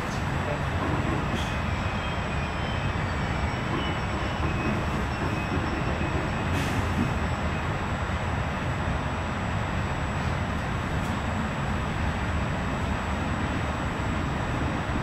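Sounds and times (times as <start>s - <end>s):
train wheels rumbling on rail: 0.0s - 15.0s
wheel squeals: 0.7s - 7.6s.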